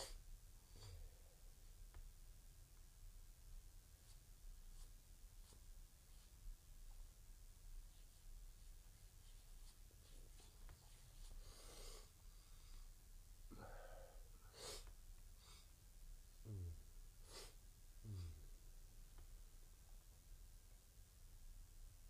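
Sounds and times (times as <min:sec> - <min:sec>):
faint breath-like noises: 0:00.0 - 0:01.8, 0:08.1 - 0:18.7.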